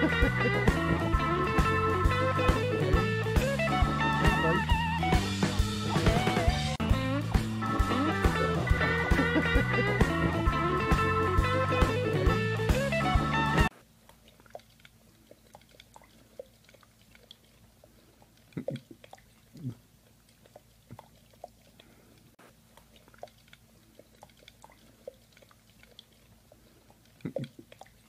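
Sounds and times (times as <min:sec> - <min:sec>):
dog licking inside a glass: 0:14.0 - 0:28.0
dog slurping: 0:14.0 - 0:28.0.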